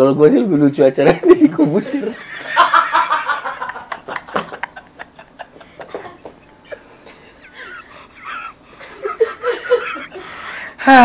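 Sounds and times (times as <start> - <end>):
man laughing hard: 2.2 - 10.4.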